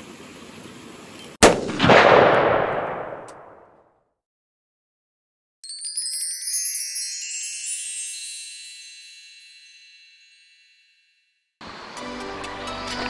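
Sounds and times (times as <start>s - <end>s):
wind chime tinkles: 5.6s - 11.6s.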